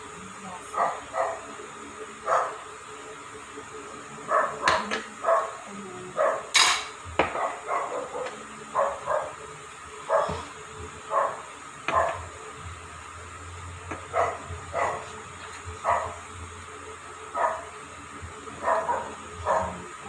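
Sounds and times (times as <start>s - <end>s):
dog barking: 0.8s - 1.5s, 2.3s - 2.6s, 4.3s - 5.6s, 6.2s - 6.5s, 7.3s - 9.4s, 10.1s - 10.4s, 11.1s - 12.2s, 14.1s - 15.1s, 15.8s - 16.2s, 17.3s - 17.7s, 18.6s - 19.8s.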